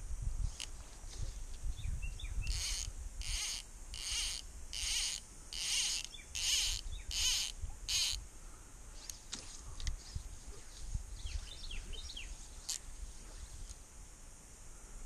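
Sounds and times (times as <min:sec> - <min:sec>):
insect buzzing pulses: 0:01.4 - 0:15.0.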